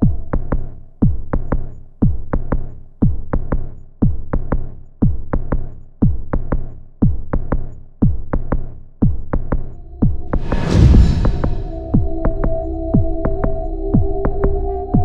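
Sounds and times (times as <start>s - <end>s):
deep kick drum: 0.0s - 15.0s.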